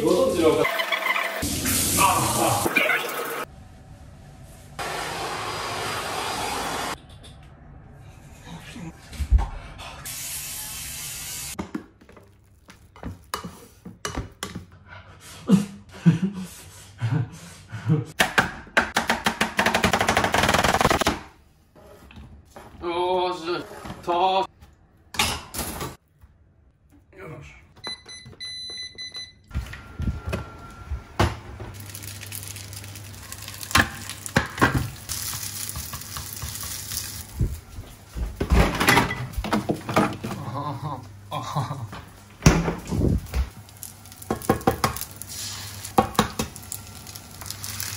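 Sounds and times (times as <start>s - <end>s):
cooktop electronic beeps: 0.6s - 1.5s
electric shaver hissing: 10.1s - 11.6s
rice sizzling in a frying pan: 31.8s - 37.4s, 43.6s - 47.9s.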